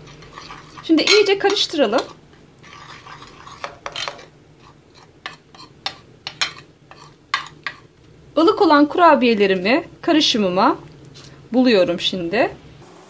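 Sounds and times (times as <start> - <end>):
spoon scraping powder in bowl: 0.0 - 7.9.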